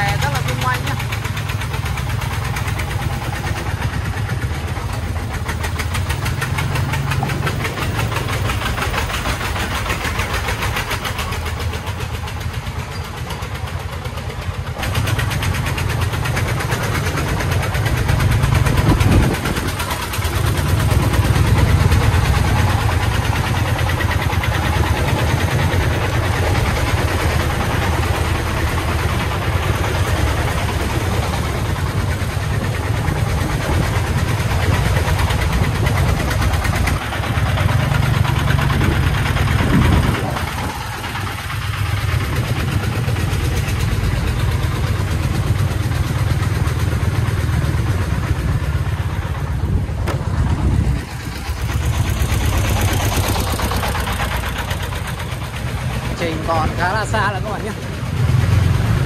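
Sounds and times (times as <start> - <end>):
diesel truck engine running: 0.0 - 59.0.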